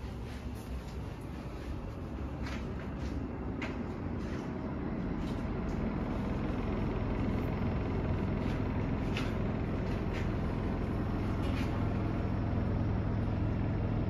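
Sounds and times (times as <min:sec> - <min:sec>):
road vehicle rumble: 0:00.0 - 0:14.0.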